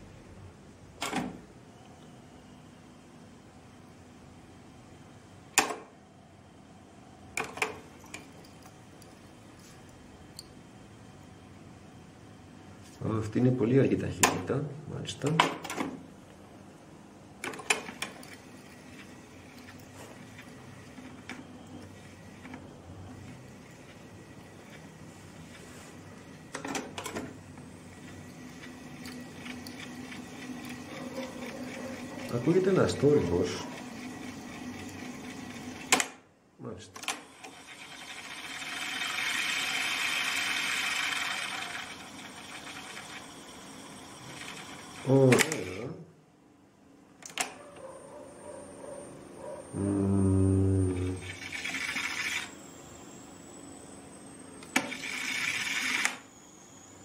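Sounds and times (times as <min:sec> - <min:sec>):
faint hum of tape deck: 0:00.0 - 0:57.0
tape recorder control clicks: 0:35.9 - 0:36.2.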